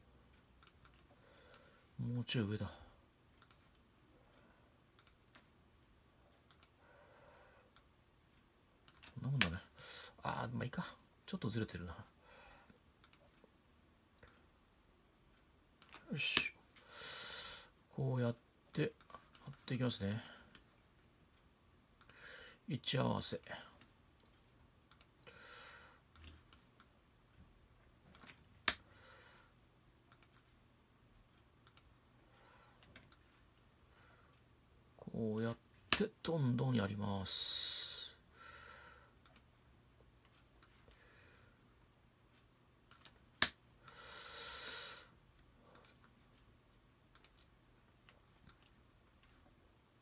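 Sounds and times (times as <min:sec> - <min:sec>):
computer mouse clicks: 0:00.4 - 0:01.7, 0:03.4 - 0:03.9, 0:04.9 - 0:05.5, 0:06.4 - 0:06.8, 0:08.8 - 0:09.6, 0:13.0 - 0:13.5, 0:15.8 - 0:16.6, 0:22.0 - 0:22.2, 0:23.4 - 0:25.3, 0:26.1 - 0:27.0, 0:28.0 - 0:28.9, 0:30.1 - 0:30.5, 0:31.4 - 0:32.0, 0:32.8 - 0:33.4, 0:35.4 - 0:36.1, 0:39.2 - 0:39.5, 0:42.3 - 0:44.0, 0:45.4 - 0:46.4, 0:47.1 - 0:49.5.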